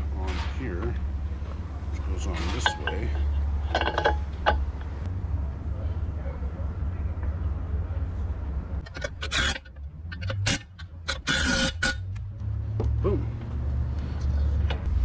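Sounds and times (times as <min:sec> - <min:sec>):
low steady rumble: 0:00.0 - 0:15.0
scraping and clicking on metal: 0:02.2 - 0:05.1, 0:08.8 - 0:12.1.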